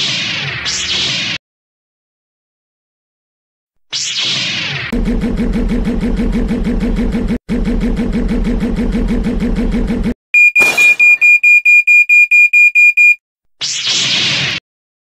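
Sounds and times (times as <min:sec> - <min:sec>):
pulsing engine hum: 0:05.0 - 0:10.2
high electronic alarm beeping: 0:10.4 - 0:13.2.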